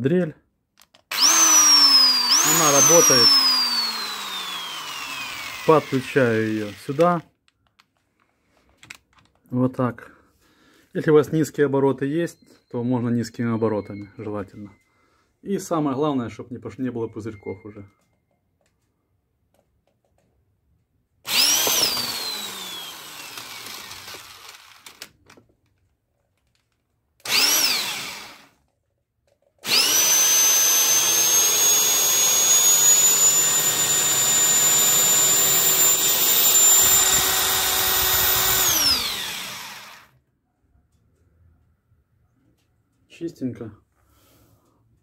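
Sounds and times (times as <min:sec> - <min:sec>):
electric drill whining: 0:01.1 - 0:07.2, 0:21.3 - 0:25.1, 0:27.2 - 0:28.6, 0:29.6 - 0:40.2.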